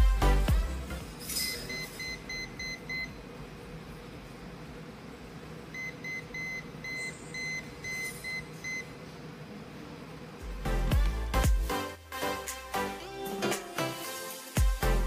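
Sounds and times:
multimeter alarm beeping: 1.5 - 3.2, 5.8 - 8.9.

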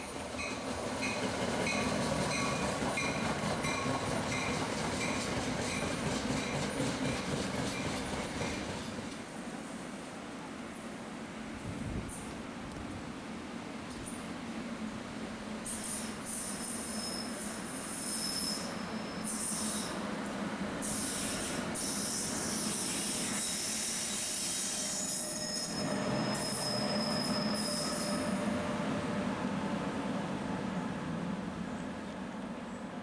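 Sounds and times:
train wheel squeal: 0.0 - 9.0, 15.6 - 20.1, 20.8 - 29.5
train low rumble: 0.0 - 18.0, 18.8 - 33.0.

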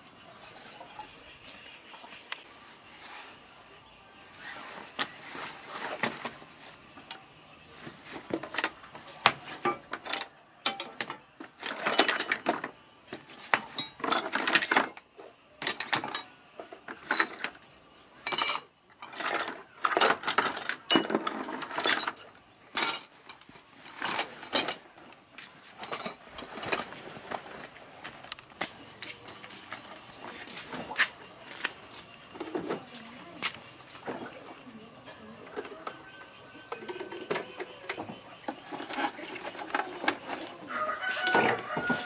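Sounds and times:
metal tools clinking: 9.5 - 12.8, 13.4 - 17.6, 18.2 - 27.8.

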